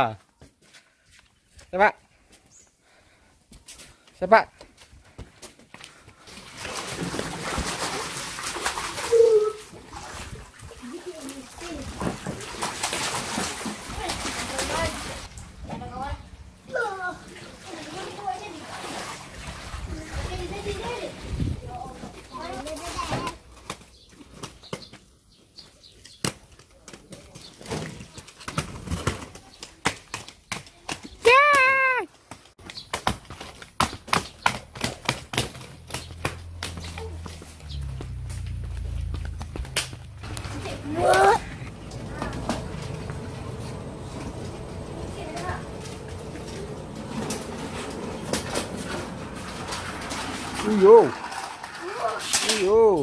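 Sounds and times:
water splashing in paddling pool: 6.2s - 16.0s, 16.7s - 23.6s, 35.4s - 53.0s
skate wheels knocking and clicking: 32.3s - 37.0s
skates rolling and scraping: 32.3s - 52.7s.

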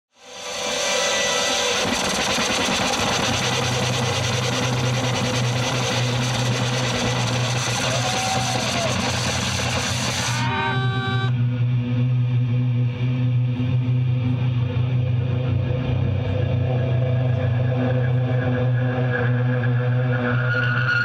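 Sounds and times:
distorted guitar noise: 0.1s - 21.0s
low bass drone: 0.4s - 20.8s
pitched feedback tones: 5.4s - 11.4s.

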